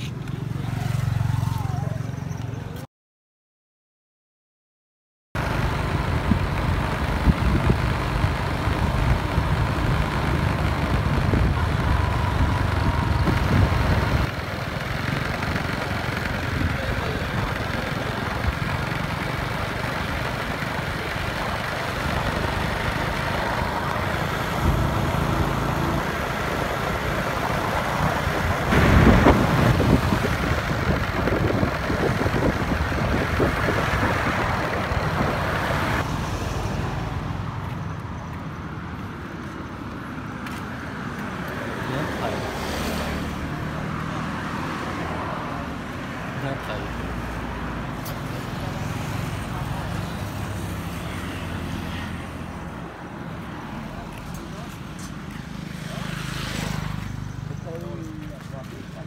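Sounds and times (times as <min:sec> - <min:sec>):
road noise in traffic: 0:00.0 - 0:02.9, 0:05.4 - 0:59.0
traffic passing by: 0:00.0 - 0:02.9, 0:05.4 - 0:59.0
wind rushing on microphone: 0:06.1 - 0:19.3, 0:20.3 - 0:36.0.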